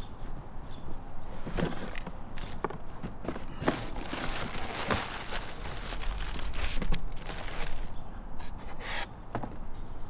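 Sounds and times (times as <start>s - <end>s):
plastic bags rustling and crinkling: 3.3s - 8.0s.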